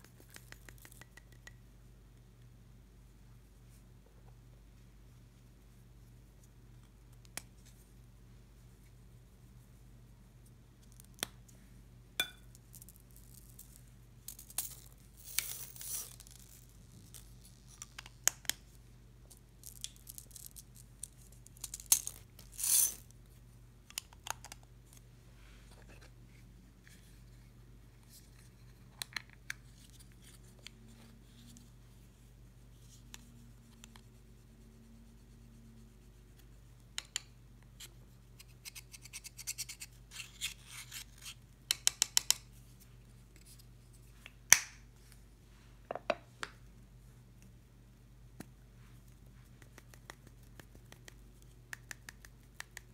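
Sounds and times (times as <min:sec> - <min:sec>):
beads pouring hiss: 0:14.3 - 0:17.3.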